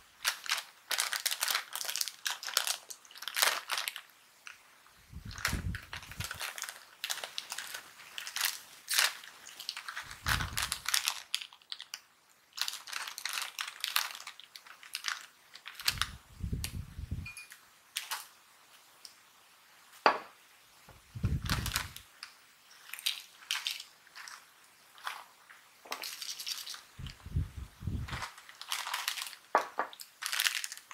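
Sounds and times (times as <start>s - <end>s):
snack bag crinkling and tearing: 0.1s - 4.6s, 5.3s - 16.2s, 17.9s - 18.4s, 21.4s - 27.0s, 28.0s - 30.9s.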